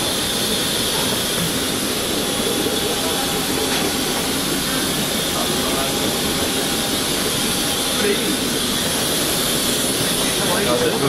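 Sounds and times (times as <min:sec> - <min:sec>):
aircraft air supply hissing: 0:00.0 - 0:11.0.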